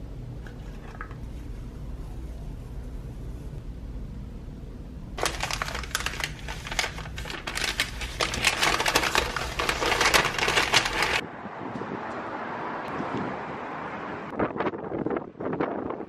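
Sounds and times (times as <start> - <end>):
paper bag crinkling: 5.2 - 11.2.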